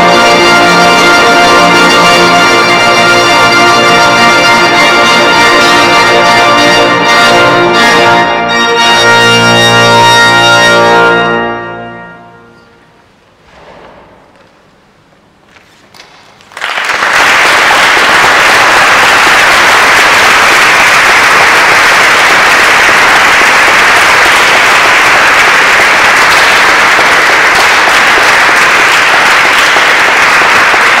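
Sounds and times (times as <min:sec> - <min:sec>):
audience applause: 0:16.4 - 0:31.0.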